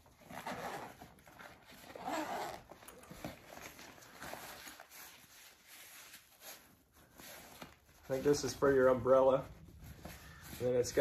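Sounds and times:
zipper being pulled open: 0.2s - 4.8s.

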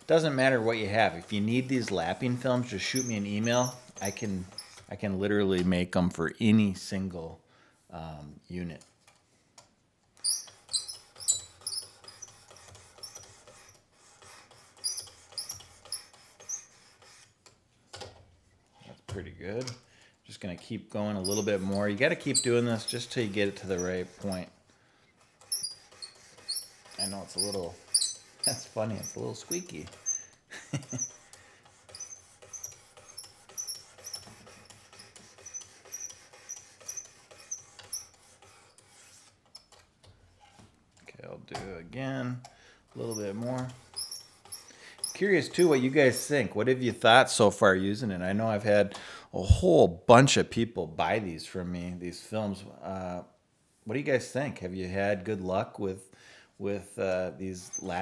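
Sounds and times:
sharpening plate rasping on knife: 10.2s - 17.3s, 21.2s - 24.5s, 25.3s - 39.4s, 43.0s - 46.2s.

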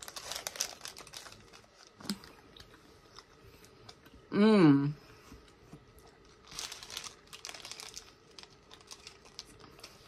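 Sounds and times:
paper sleeve crinkling: 0.0s - 2.3s, 6.1s - 10.0s.

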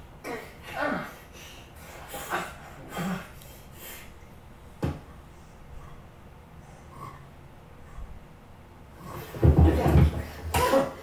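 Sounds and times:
people grunting and breathing: 0.2s - 4.2s, 9.0s - 11.0s.

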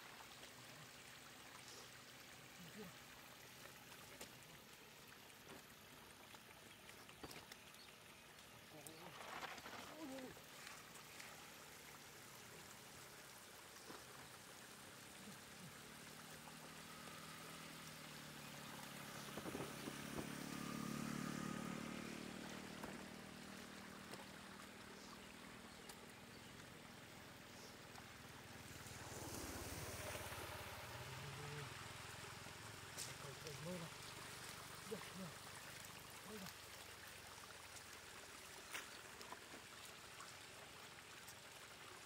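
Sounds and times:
water trickling over road: 0.0s - 42.0s
faint engine hum: 9.9s - 38.2s.

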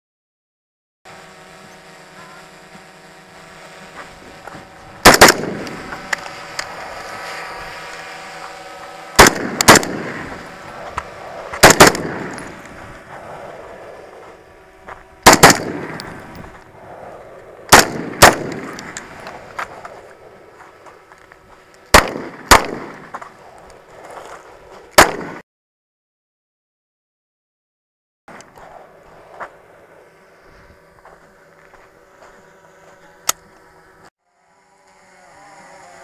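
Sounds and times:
faint steady hum: 1.1s - 24.9s, 28.4s - 36.0s
rifle gunshots with echo: 5.0s - 5.9s, 9.2s - 10.5s, 11.6s - 12.6s, 15.2s - 16.3s, 17.7s - 19.0s, 21.9s - 23.1s, 25.0s - 25.4s.

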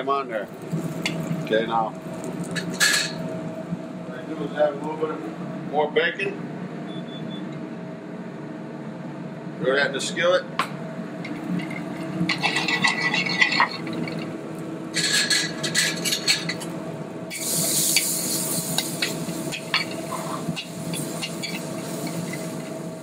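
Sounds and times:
steady hum: 0.0s - 23.0s
bacon sizzling: 0.5s - 2.8s, 17.3s - 23.0s
metal spoon scraping skillet: 12.3s - 14.2s.

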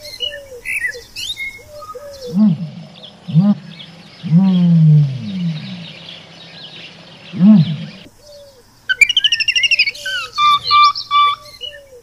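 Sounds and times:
faint chirping: 0.0s - 12.0s
long falling animal call: 1.9s - 8.1s, 8.9s - 11.5s
short rise-and-fall animal call: 8.9s - 11.4s
rapid high-pitched chirping: 8.9s - 11.6s.

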